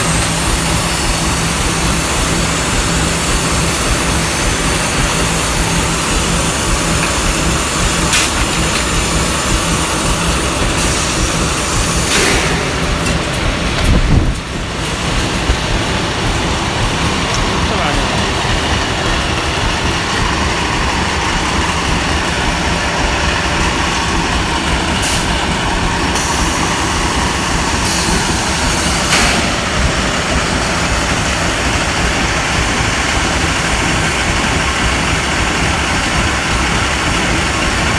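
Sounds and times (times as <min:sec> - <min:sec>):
machine drone with low hum: 0:00.0 - 0:37.9
brief hissing: 0:10.8 - 0:13.2.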